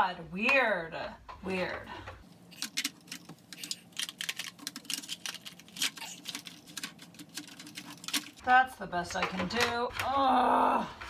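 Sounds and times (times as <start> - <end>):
plastic pens clicking and rattling: 2.5 - 8.4.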